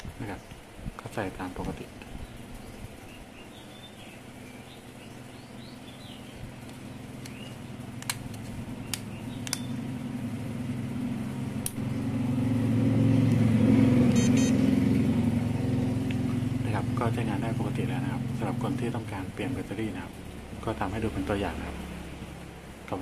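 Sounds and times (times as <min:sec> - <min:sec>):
vehicle engine: 0:05.6 - 0:23.0
sharp plastic clicks: 0:06.6 - 0:09.7.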